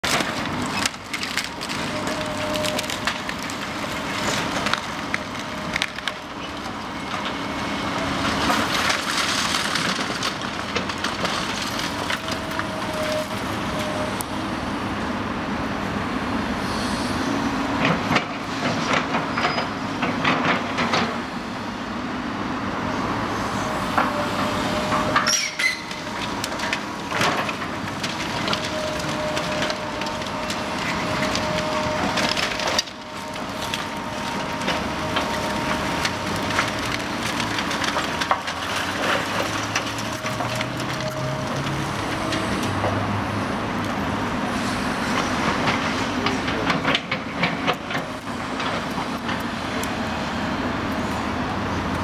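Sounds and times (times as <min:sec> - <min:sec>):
excavator engine running: 0:25.8 - 0:52.0.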